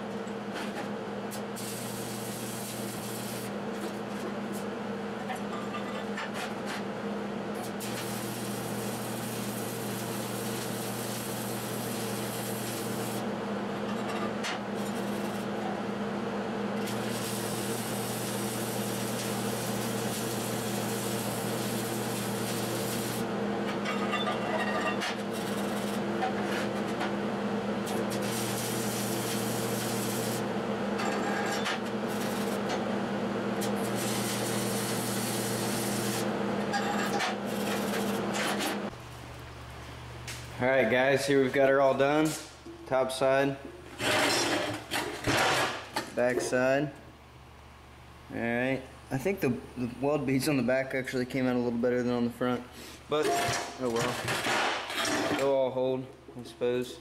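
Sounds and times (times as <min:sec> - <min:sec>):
welding arc crackling: 0:07.7 - 0:13.2, 0:16.8 - 0:23.3, 0:27.9 - 0:30.5, 0:32.1 - 0:32.7, 0:33.6 - 0:36.3.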